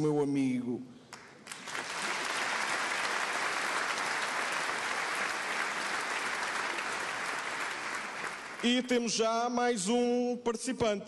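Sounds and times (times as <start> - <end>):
audience applauding: 1.4 - 8.9.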